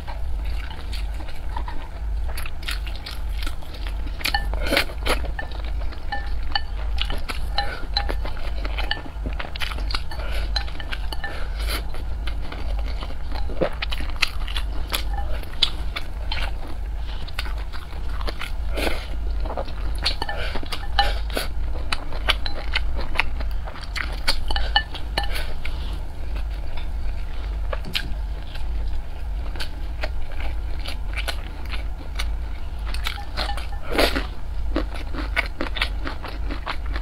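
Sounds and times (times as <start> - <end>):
chewing with wet mouth clicks: 0.0 - 25.7, 26.4 - 37.0
steady low hum: 0.0 - 37.0.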